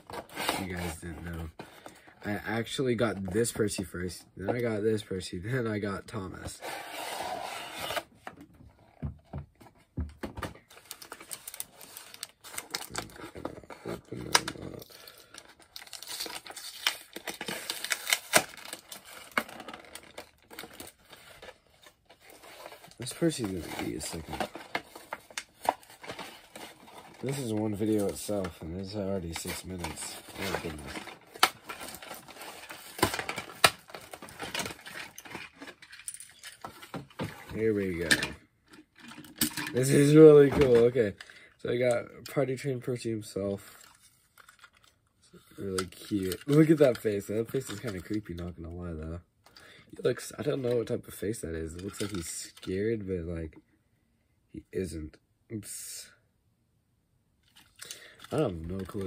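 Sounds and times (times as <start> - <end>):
toy box rustling scrape: 6.6 - 8.1, 21.0 - 28.6
plastic packaging crinkling: 10.7 - 36.0.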